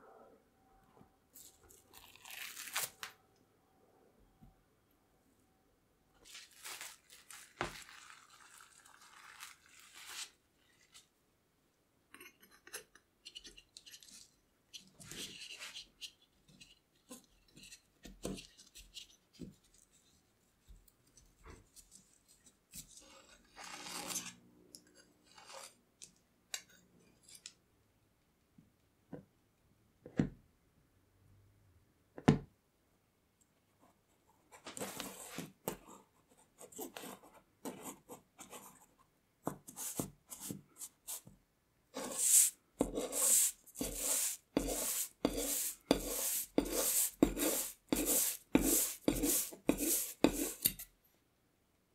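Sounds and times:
plastic wrap rustling: 6.2 - 11.1.

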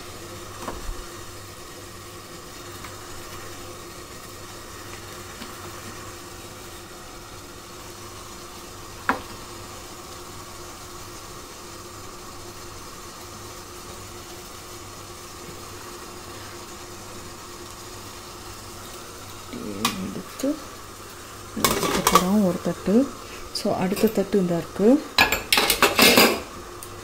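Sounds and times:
water boiling hiss: 0.0 - 27.0
faint hum: 14.3 - 25.2.

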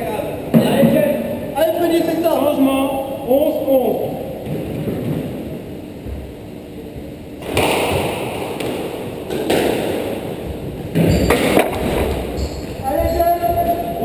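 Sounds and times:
squash ball hitting racket and walls: 4.3 - 5.6, 7.4 - 14.0.

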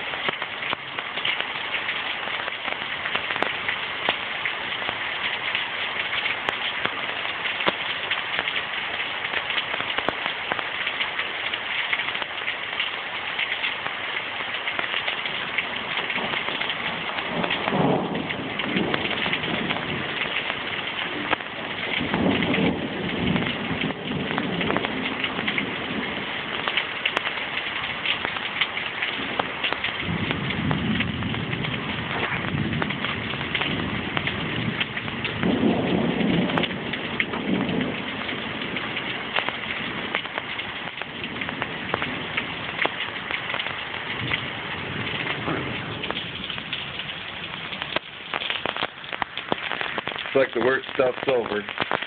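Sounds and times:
heavy rain pouring: 0.0 - 52.0
thunder rumbling: 14.7 - 52.0.

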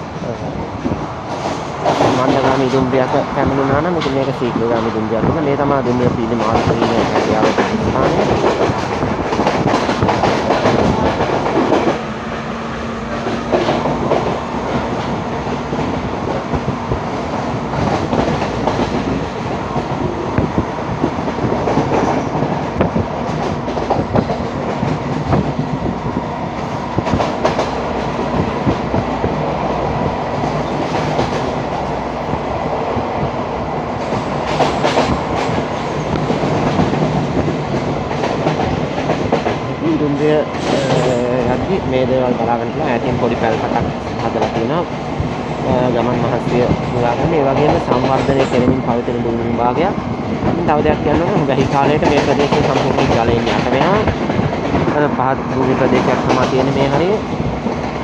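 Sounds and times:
train rumble and air rush: 0.0 - 58.0
wheels clacking over rail joints: 6.4 - 32.4, 34.0 - 39.8, 49.9 - 58.0.

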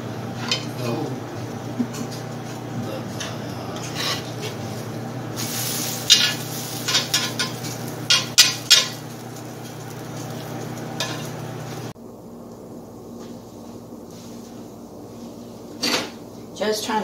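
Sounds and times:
pancake sizzling in butter: 3.8 - 12.0.

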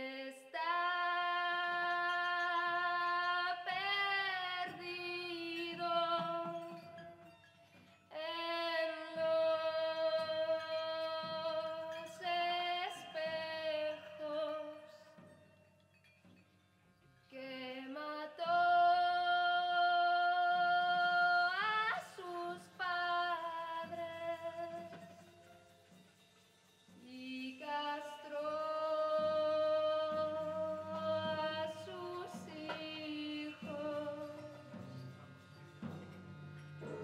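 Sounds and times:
woman singing into a microphone: 0.0 - 7.0, 8.1 - 15.2, 17.4 - 25.2, 27.1 - 34.7
quiet low backing music: 0.9 - 37.0.

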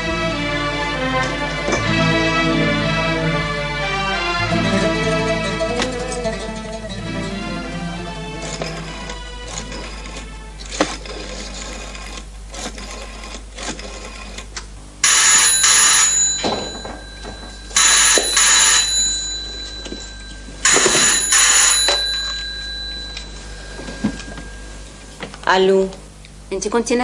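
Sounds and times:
telephone bell ringing: 15.0 - 25.2.

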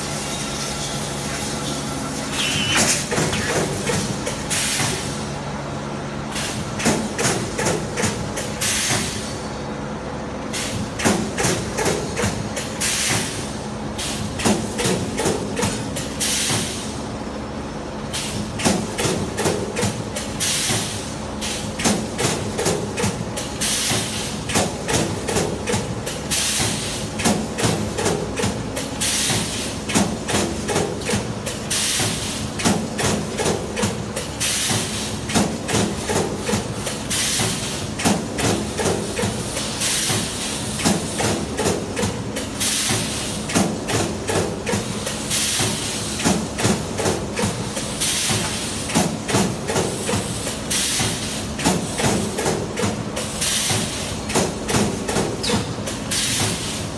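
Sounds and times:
steady machine hum: 0.0 - 6.8
welding machine clattering: 0.1 - 5.1
pneumatic air hissing: 0.1 - 5.2.

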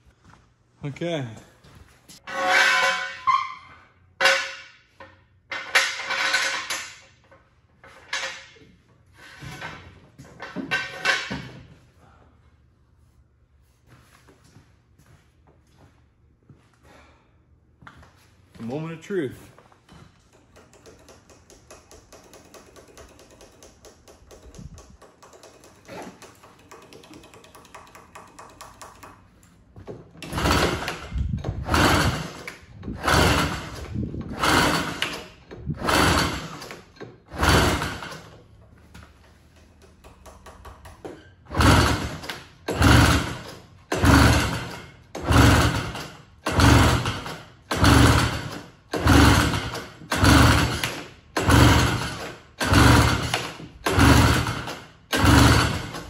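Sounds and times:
recoil starter pulls: 20.2 - 56.0.

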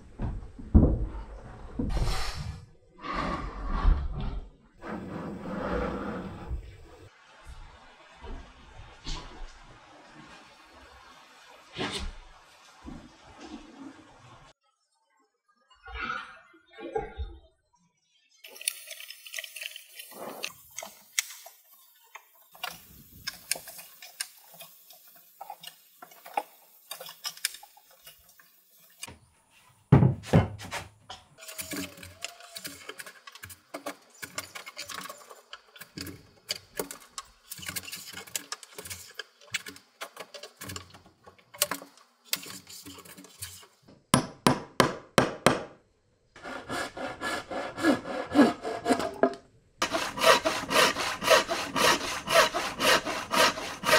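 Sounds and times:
scraping and tapping wood: 30.2 - 43.8
hand saw cutting wood: 46.4 - 49.2, 49.8 - 53.9.

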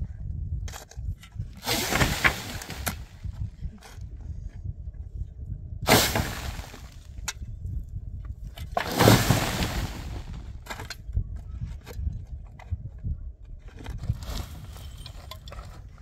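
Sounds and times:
low steady rumble: 0.0 - 16.0
shovels scraping stony soil: 1.6 - 3.2, 5.9 - 7.1, 8.7 - 10.5.

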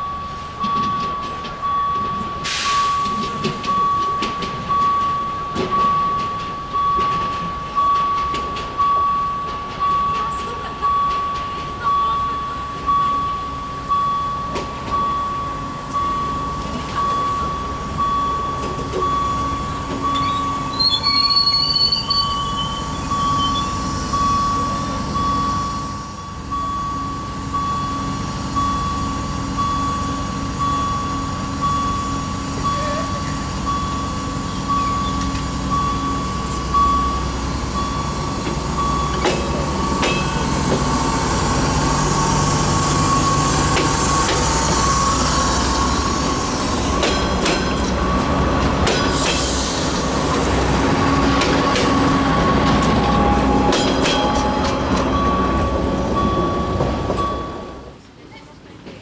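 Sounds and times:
diesel train engine drone: 0.0 - 59.0
train wheels clicking over rail joints: 37.8 - 57.7.

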